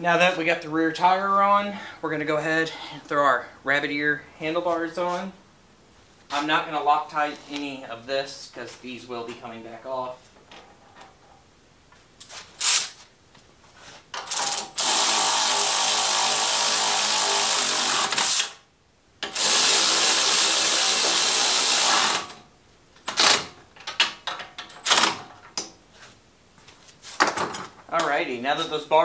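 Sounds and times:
handheld power tool running: 14.3s - 18.6s, 19.2s - 22.3s.

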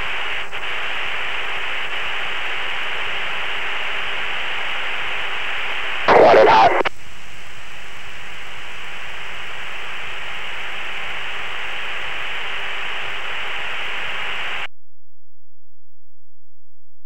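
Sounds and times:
radio intercom hiss: 0.0s - 7.0s, 8.2s - 14.7s.

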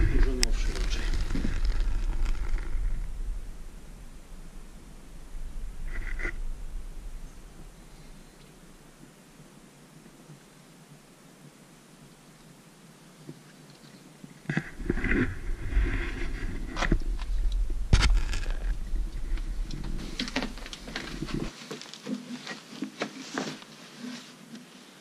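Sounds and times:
footsteps crunching on rubble: 0.0s - 3.2s, 14.7s - 23.7s
low rumble: 0.0s - 9.6s, 14.7s - 21.5s.

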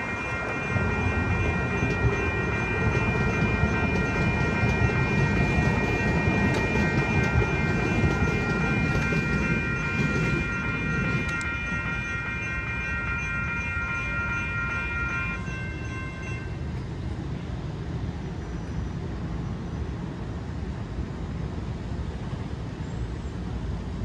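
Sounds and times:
crossing warning bell ringing: 0.0s - 16.8s
light-rail trolley rumbling past: 0.0s - 24.0s.

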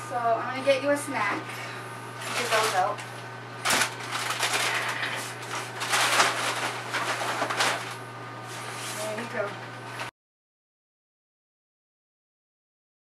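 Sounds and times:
boxes and packets crinkling: 2.2s - 3.0s, 3.6s - 8.0s
fabric bag rustling: 3.6s - 9.2s.

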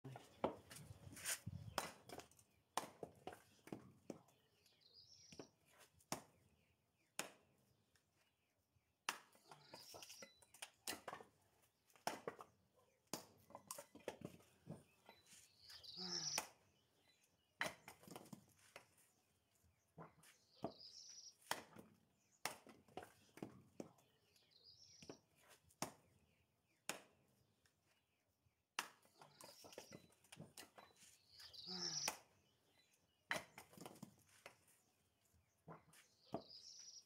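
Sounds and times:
axe chopping firewood: 1.7s - 4.2s, 5.3s - 6.5s, 7.1s - 7.6s, 9.0s - 14.8s, 17.6s - 18.8s, 21.4s - 24.0s, 25.8s - 26.1s, 26.8s - 27.3s, 28.7s - 30.8s, 33.2s - 34.2s.

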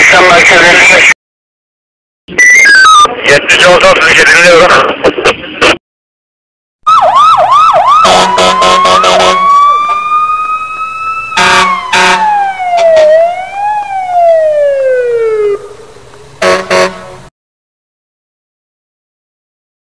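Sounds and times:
police siren wailing: 2.4s - 3.2s, 6.8s - 16.9s
harsh horn blasts: 8.0s - 9.5s, 11.4s - 12.3s, 16.4s - 17.3s.

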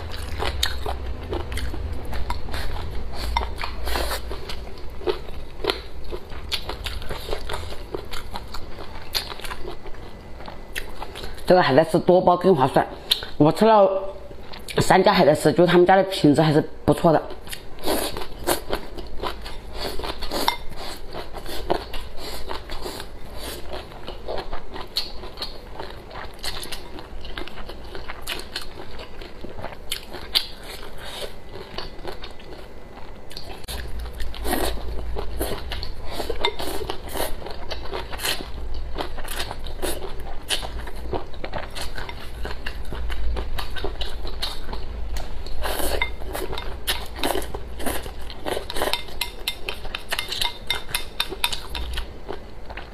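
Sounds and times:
wet chewing and slurping: 0.0s - 11.5s, 33.3s - 52.9s.

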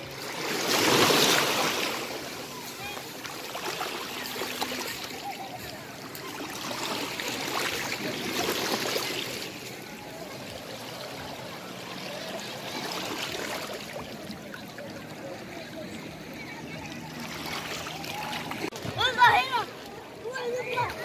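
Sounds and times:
seawater washing over rocks: 0.0s - 15.5s.

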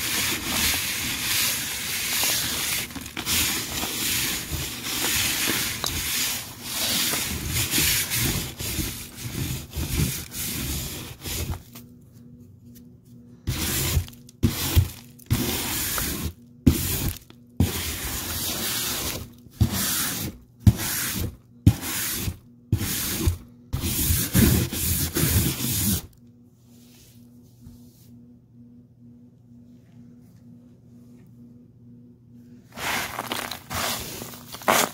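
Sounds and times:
vacuum cleaner suction: 0.0s - 11.6s, 32.8s - 34.9s
grit crackling: 32.8s - 34.9s.

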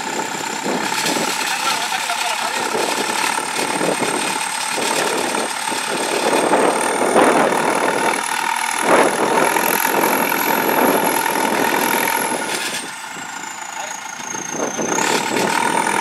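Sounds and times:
diesel engine rattling: 0.0s - 16.0s
high whine rising: 0.0s - 16.0s.

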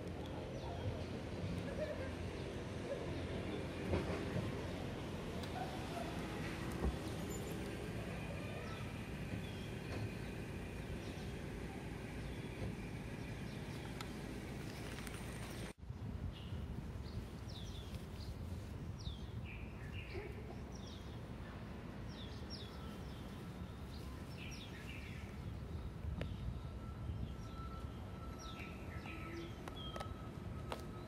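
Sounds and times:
small birds chirping: 6.9s - 26.4s.

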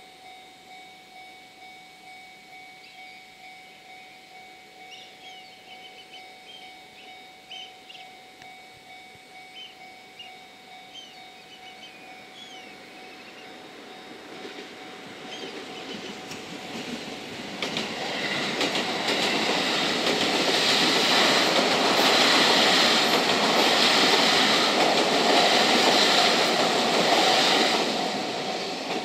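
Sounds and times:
level-crossing alarm dinging: 0.0s - 29.0s
birds chirping: 4.8s - 8.2s, 9.5s - 13.7s, 15.2s - 16.3s.

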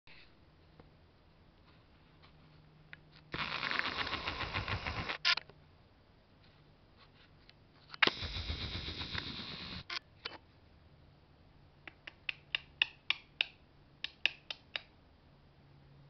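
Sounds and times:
camera zoom motor whirring: 3.4s - 5.4s, 8.0s - 10.0s.

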